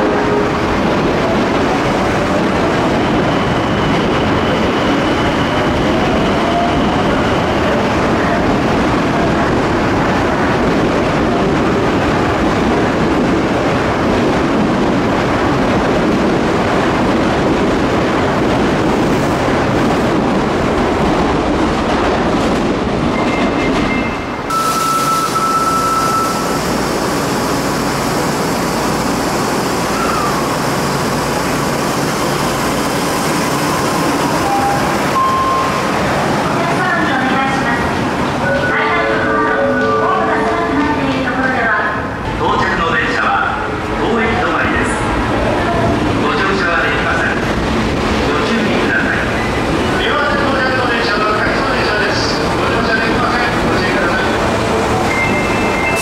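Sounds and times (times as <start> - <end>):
subway train wheels rumbling: 0.0 - 56.0
short electronic tones: 24.5 - 26.6.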